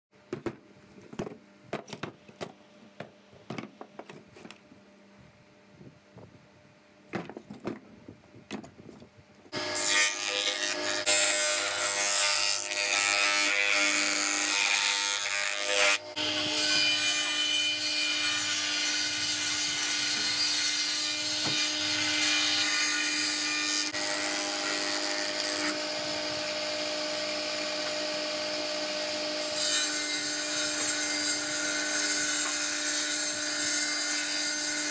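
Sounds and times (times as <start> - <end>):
wood slabs knocking and clattering: 7.1 - 7.9
table saw ripping wood: 9.5 - 34.9.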